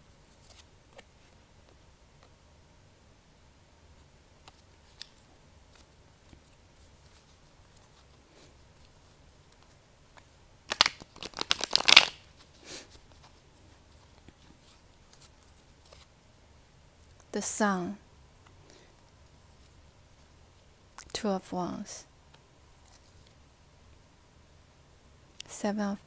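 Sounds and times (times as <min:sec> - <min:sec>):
soft rustle of cards: 0:00.0 - 0:02.5, 0:03.8 - 0:16.4, 0:18.4 - 0:23.5
cards shuffling: 0:00.3 - 0:01.4, 0:04.4 - 0:08.2, 0:08.8 - 0:16.1.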